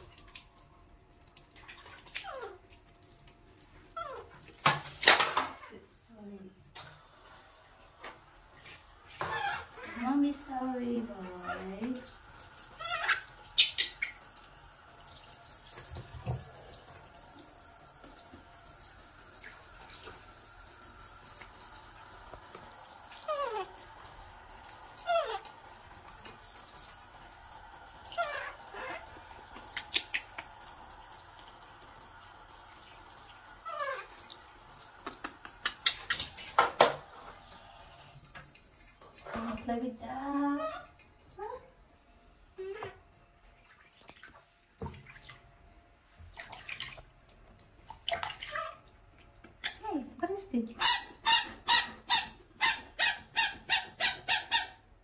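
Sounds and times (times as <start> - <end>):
water splashing: 15.0 - 37.1, 46.3 - 48.9
baby monkey squeaking: 50.8 - 54.8.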